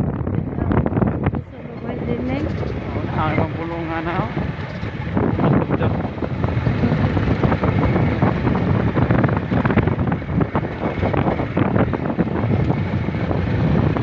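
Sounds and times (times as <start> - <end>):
motorcycle engine running: 0.0 - 14.0
wind buffeting microphone: 0.0 - 14.0.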